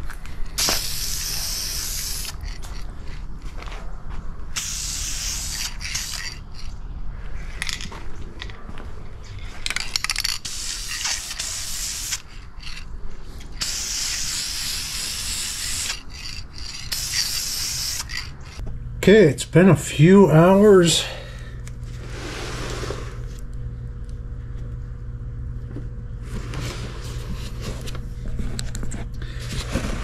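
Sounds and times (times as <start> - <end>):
aerosol spray can hissing: 0.6 - 2.5, 4.6 - 6.4, 10.4 - 12.3, 13.6 - 18.6.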